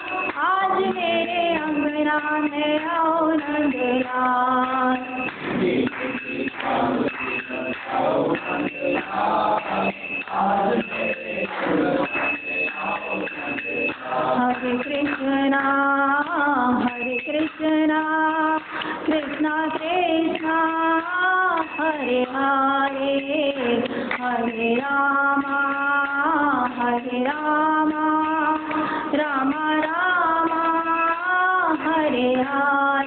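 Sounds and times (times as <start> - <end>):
woman singing: 0.0 - 5.3, 13.5 - 33.0.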